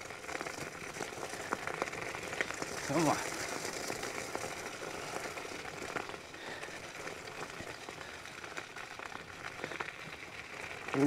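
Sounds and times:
tyres rolling on gravel: 0:00.0 - 0:11.0.

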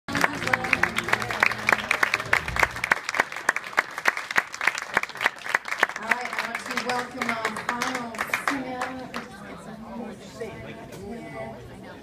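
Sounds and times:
audience applauding: 0:00.1 - 0:09.4.

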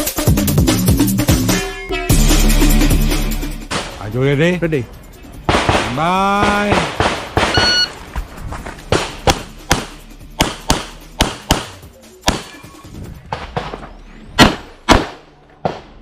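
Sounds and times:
pistol shots: 0:05.5 - 0:07.8, 0:08.9 - 0:12.5, 0:14.4 - 0:16.0
shot timer beep: 0:07.5 - 0:07.9.

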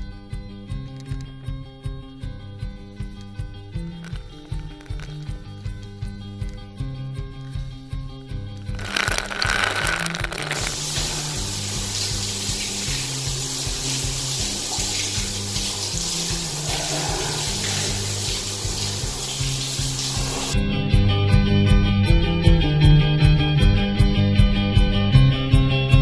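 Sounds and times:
shower water spraying on helmet: 0:08.8 - 0:20.6.

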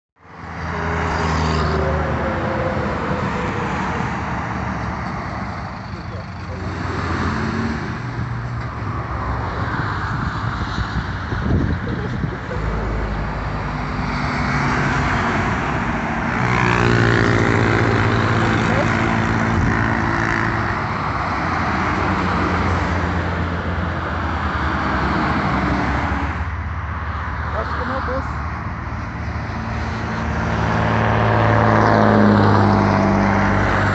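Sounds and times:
truck engine hum: 0:00.2 - 0:33.9
tyre and road noise: 0:00.2 - 0:33.9.

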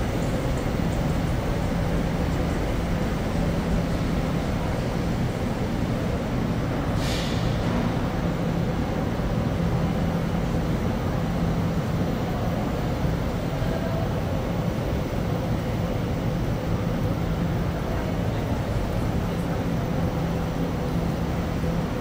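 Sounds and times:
idling vehicle engines hum: 0:00.0 - 0:22.0
traffic noise: 0:00.0 - 0:22.0
short hiss: 0:07.0 - 0:07.6.

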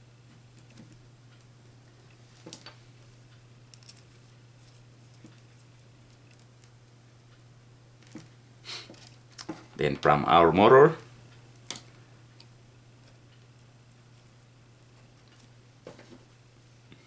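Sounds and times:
steady low hum: 0:00.0 - 0:17.0
wire ends twisting clicks: 0:03.7 - 0:04.1.

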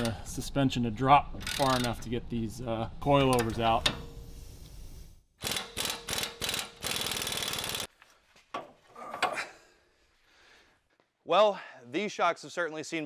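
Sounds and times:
impact wrench hammering: 0:05.4 - 0:07.9.

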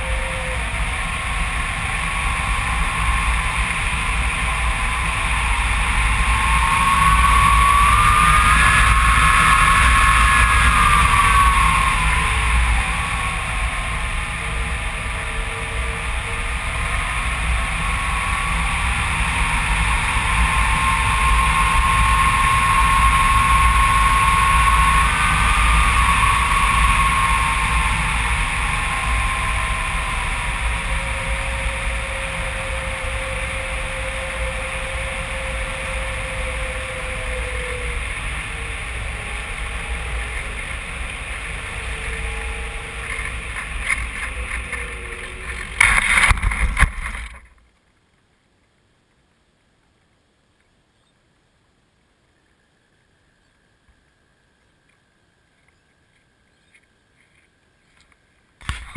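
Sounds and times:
wind rushing over microphone: 0:00.0 - 0:47.5
faint whining tones: 0:00.0 - 0:58.9
glider bumping and scraping in grass: 0:43.0 - 0:47.8.

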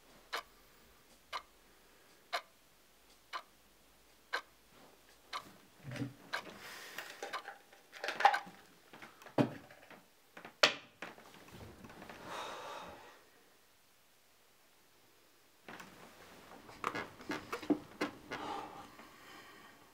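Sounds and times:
clock tick: 0:00.3 - 0:05.6, 0:06.3 - 0:06.6, 0:07.2 - 0:07.5
bedding rustling: 0:11.1 - 0:12.4, 0:15.7 - 0:19.2.

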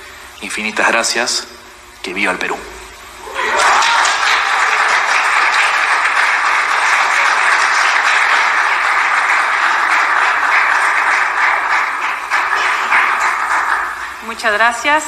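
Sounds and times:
audience applauding: 0:03.2 - 0:14.4.

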